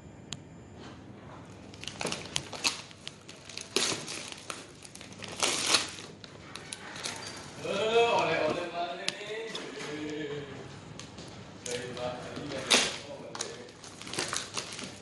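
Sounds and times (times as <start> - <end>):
paper bag tearing and crumpling: 1.7 - 7.8, 11.7 - 15.0.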